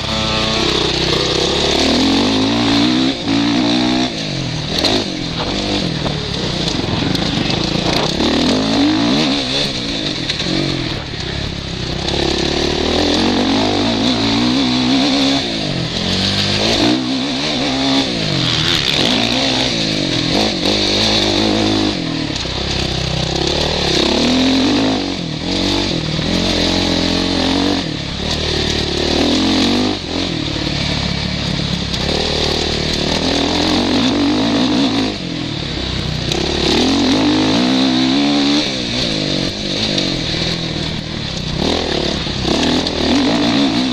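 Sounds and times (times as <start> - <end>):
motorcycle engine revving: 0.0 - 43.9.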